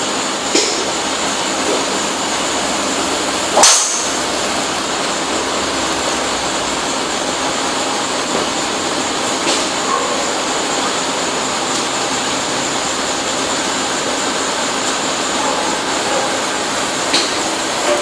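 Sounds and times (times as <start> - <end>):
golf driver striking ball: 3.5 - 4.2.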